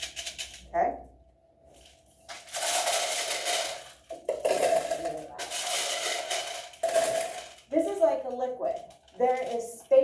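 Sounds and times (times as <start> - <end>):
glass marbles rattling in container: 2.4 - 10.0.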